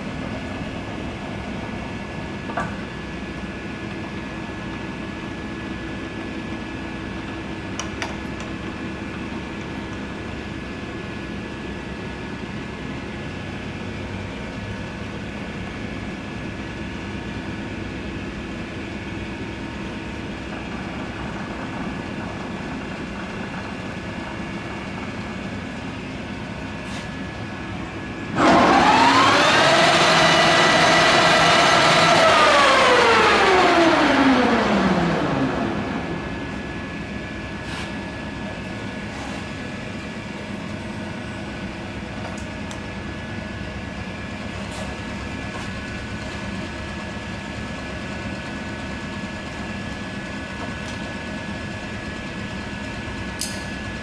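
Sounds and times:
lathe humming: 18.4s - 37.6s
gear whine: 27.5s - 37.6s.

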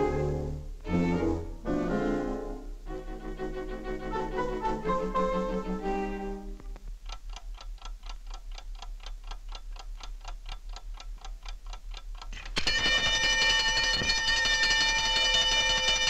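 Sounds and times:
alarm clock ticking: 7.1s - 16.0s
alarm clock ringing: 12.6s - 16.0s.

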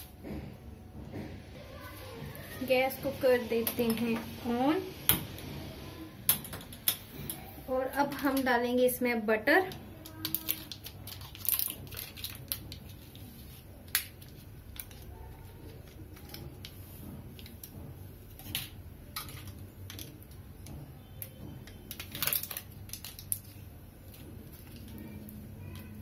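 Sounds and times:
paper wrapper crinkling: 10.0s - 16.5s.

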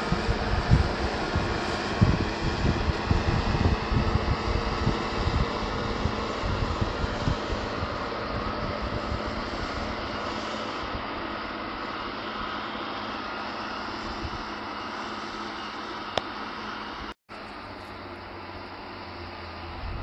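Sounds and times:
wind on microphone: 0.0s - 11.4s, 14.0s - 14.6s, 19.7s - 20.0s
tractor diesel engine running: 0.0s - 20.0s.

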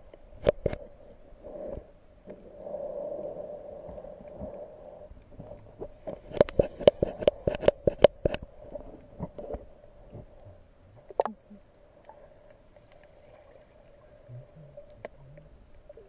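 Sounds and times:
low underwater hum: 0.0s - 16.0s.

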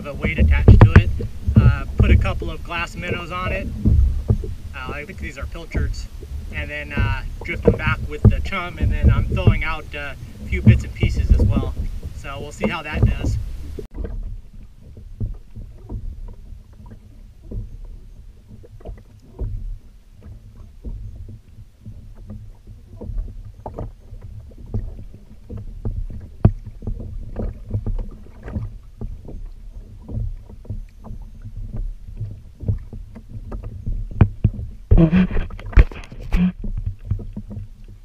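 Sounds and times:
steady low rumble: 0.0s - 16.7s
water lapping against a kayak hull: 0.0s - 38.0s
knock on kayak hull: 0.3s - 5.0s, 5.7s - 14.3s.

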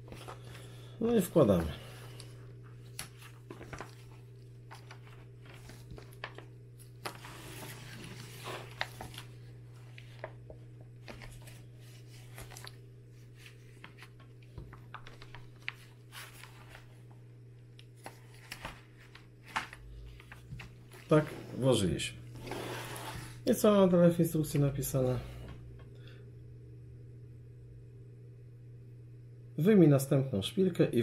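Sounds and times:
magazine pages rustling: 0.0s - 21.3s
steady low hum: 0.0s - 31.0s.

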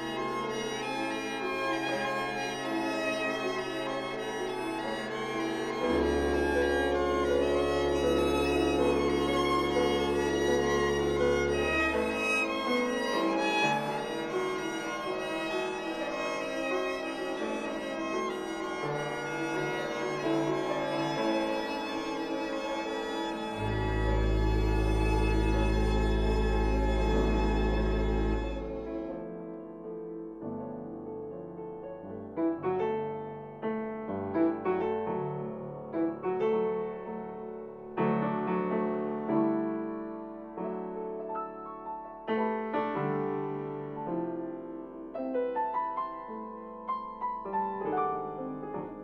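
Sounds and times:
slow keyboard music: 0.0s - 33.8s
organ playing held chords: 6.0s - 12.6s, 23.6s - 28.8s.

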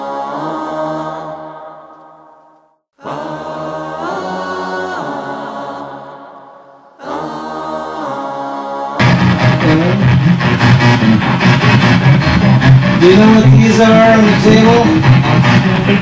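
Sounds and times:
choir chanting long held notes: 0.0s - 16.0s
band music with guitar: 9.0s - 16.0s.

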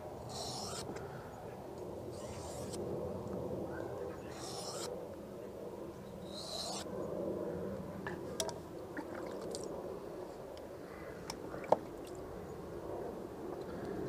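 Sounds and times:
knife blade being wiped: 0.3s - 0.9s, 4.3s - 4.9s
water sloshing in a tub: 8.4s - 9.7s.

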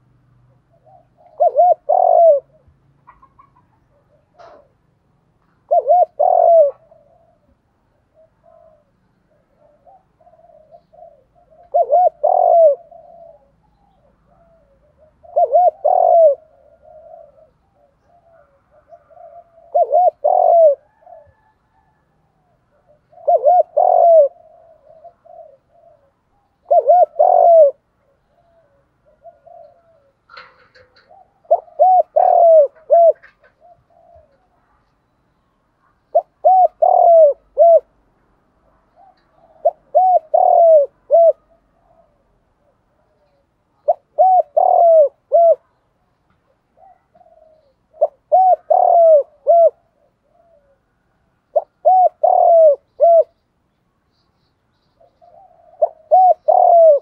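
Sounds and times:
dove cooing: 0.0s - 53.4s, 54.7s - 57.0s.

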